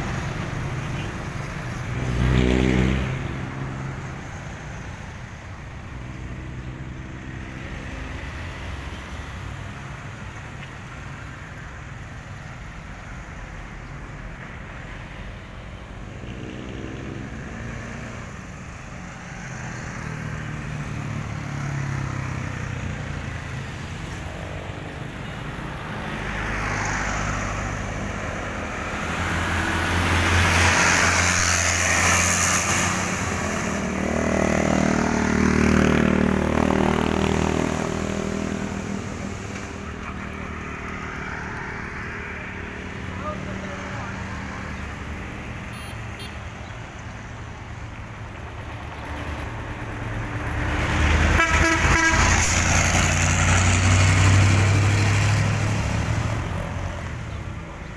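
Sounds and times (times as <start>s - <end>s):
trucks driving past: 0.0s - 57.9s
motorcycles driving past: 0.6s - 4.4s, 16.1s - 46.2s, 52.7s - 57.9s.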